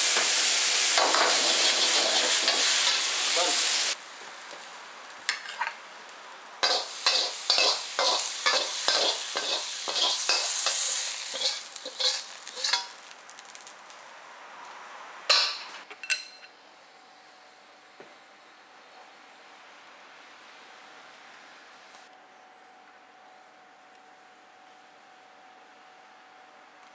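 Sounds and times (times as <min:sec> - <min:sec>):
faint sizzle: 0:00.0 - 0:15.8
metal spatula scraping a wok: 0:01.0 - 0:03.2, 0:06.6 - 0:13.1
sharp metallic clanks: 0:15.3 - 0:16.5.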